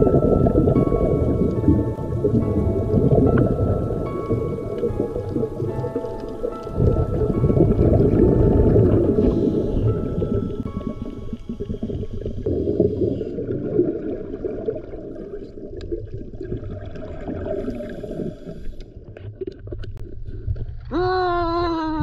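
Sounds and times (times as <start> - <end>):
background music: 0.0 - 13.1
underwater gurgling and rumbling: 0.0 - 22.0.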